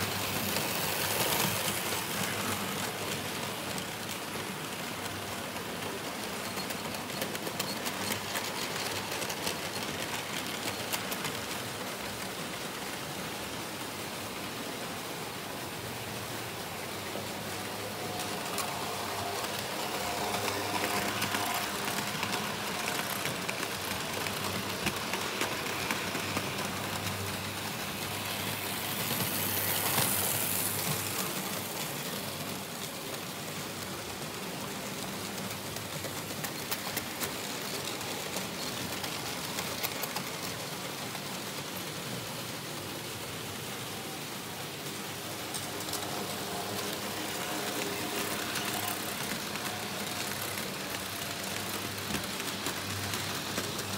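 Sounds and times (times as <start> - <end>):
model train wheels clicking on rails: 0.0 - 53.9
faint locomotive motor hum: 14.6 - 53.9.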